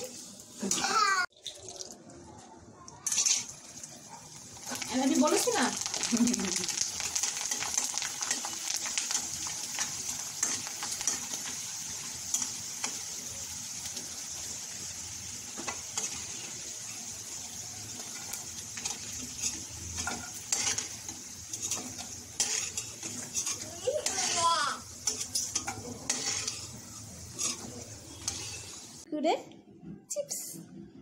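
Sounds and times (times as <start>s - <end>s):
hot oil sizzling: 0.0s - 2.0s, 3.0s - 29.1s
metal spoon scraping pan: 3.0s - 3.5s, 18.0s - 29.0s.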